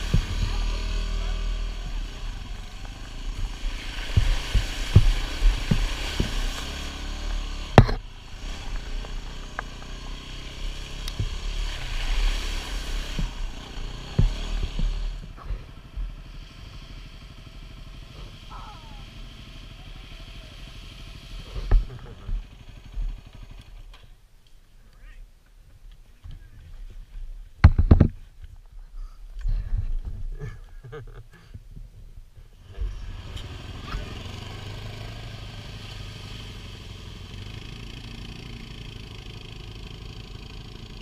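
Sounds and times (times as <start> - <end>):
knocks over bumps: 0.0 - 0.8, 2.8 - 8.1, 13.1 - 16.0, 21.6 - 23.2, 27.6 - 28.3
tyres hissing through water: 0.0 - 15.4
dirt bike engine running: 0.0 - 24.1.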